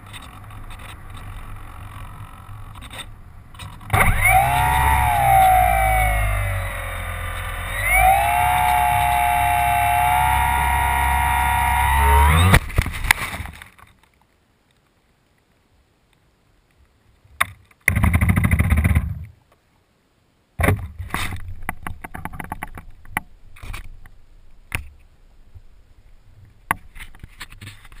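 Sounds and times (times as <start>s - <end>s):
electric motor and propeller winding down: 3.9s - 12.7s
short noisy burst: 3.9s - 12.8s
knocks and scraping in grass: 12.4s - 14.3s, 26.8s - 28.0s.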